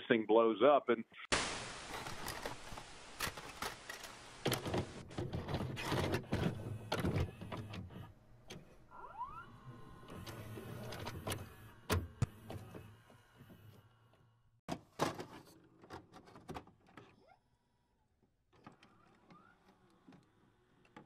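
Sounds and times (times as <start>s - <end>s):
static hiss: 1.3s - 5.0s
mechanical clicks and clunks: 3.2s - 8.8s.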